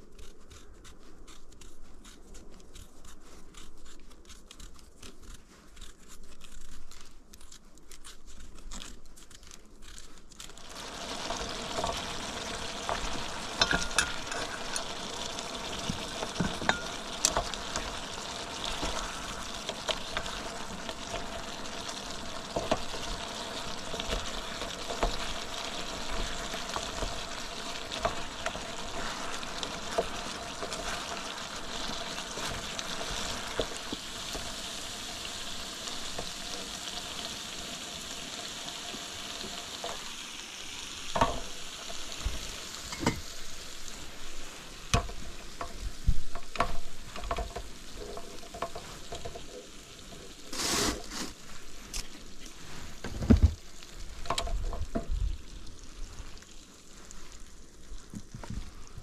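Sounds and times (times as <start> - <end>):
food sizzling in a pan: 10.4 - 59.0
cookware and utensils clinking: 11.3 - 19.0, 42.8 - 43.3.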